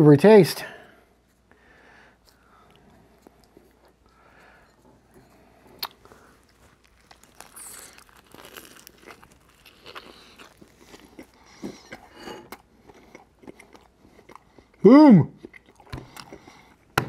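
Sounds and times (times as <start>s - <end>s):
person biting and chewing: 5.7s - 14.8s, 15.4s - 17.0s.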